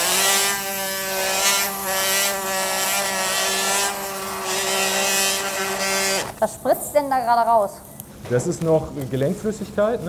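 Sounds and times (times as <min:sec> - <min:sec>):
bone saw cutting bone: 0:00.0 - 0:06.4.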